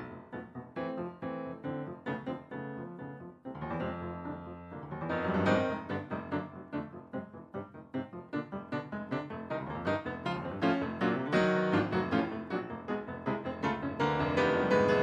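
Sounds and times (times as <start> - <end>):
grand piano playing: 0.0 - 15.0.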